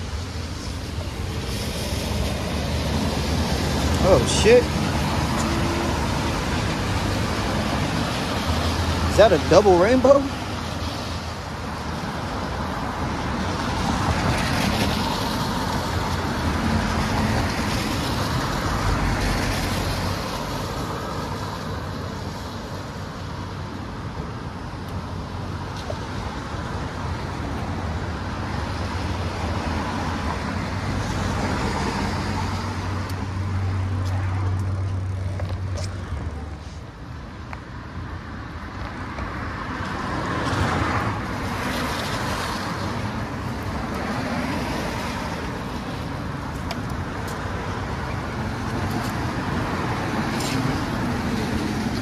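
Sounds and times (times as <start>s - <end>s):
tyres hissing on wet road: 0.0s - 23.5s, 39.4s - 52.0s.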